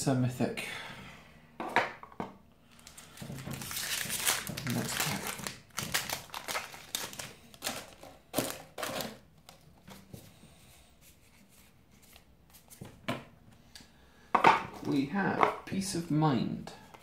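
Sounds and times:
cards snapping and rustling: 2.8 - 9.6.

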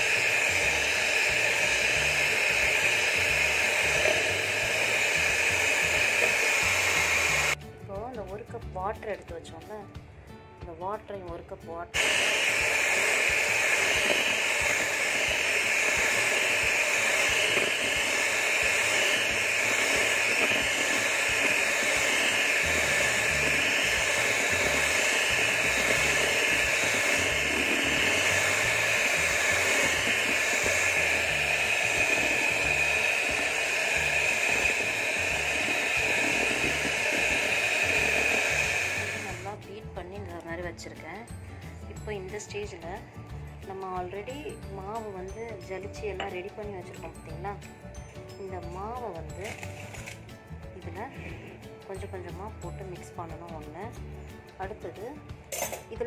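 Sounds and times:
electric hand mixer whining: 0.0 - 7.6, 12.0 - 39.6, 49.0 - 50.3.

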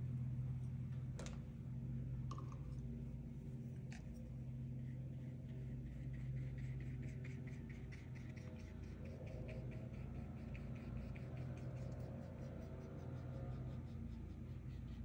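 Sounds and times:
steady low hum: 0.0 - 15.0
pencil scratching on paper: 5.9 - 15.0.

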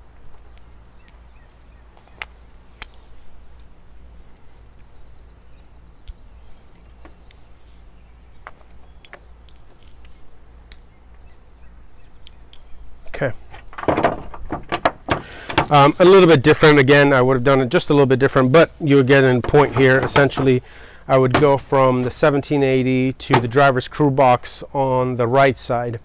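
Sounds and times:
outdoor background hum: 0.0 - 26.0
connectors clicking and knocking: 13.4 - 16.0, 19.2 - 20.6, 21.2 - 22.5.

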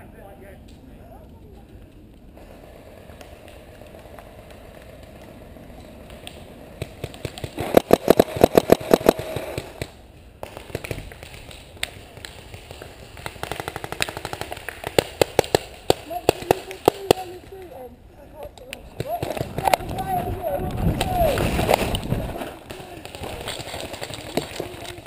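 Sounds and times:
paintball marker rapid shots: 2.4 - 17.6, 18.9 - 20.0, 20.9 - 25.0.

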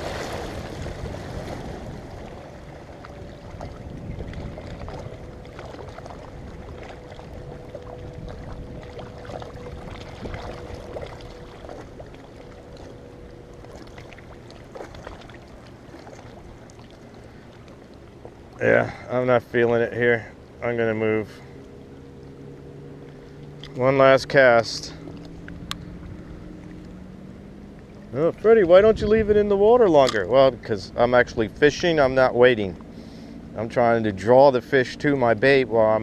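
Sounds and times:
wind rumbling on microphone: 0.0 - 12.9, 27.9 - 32.1
distant motorboat drone: 0.0 - 36.0.

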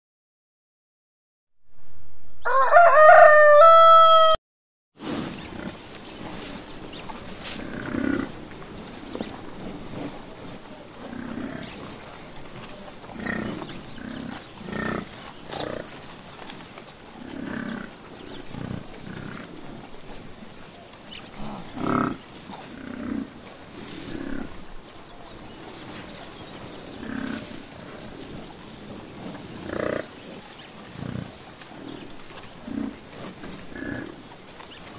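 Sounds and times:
rooster crowing: 2.4 - 4.4
quiet low animal calls: 5.3 - 34.9.

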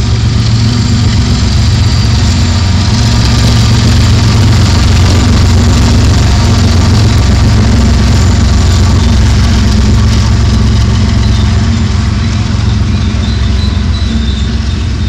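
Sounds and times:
diesel locomotives passing: 0.0 - 15.0.

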